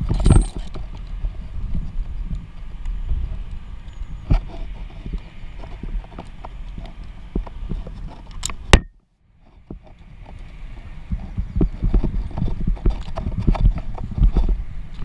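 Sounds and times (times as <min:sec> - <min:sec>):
climbing gear knocks and thumps: 0:00.0 - 0:00.8.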